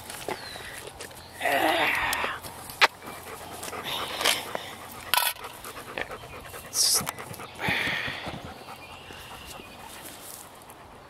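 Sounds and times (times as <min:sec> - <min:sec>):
dog panting and snuffling: 0:02.2 - 0:11.0.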